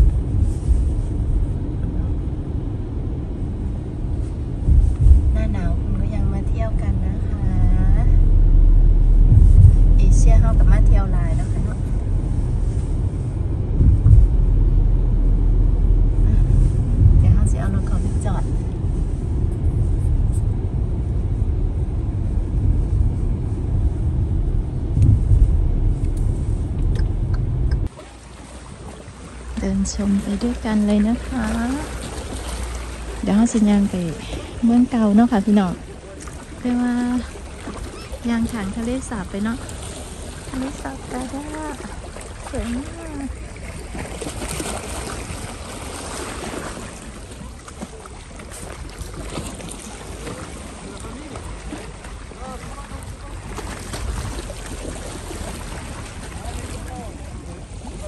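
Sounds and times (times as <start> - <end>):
car cabin road rumble: 0.0 - 58.0
waves lapping against rocks: 25.1 - 58.0.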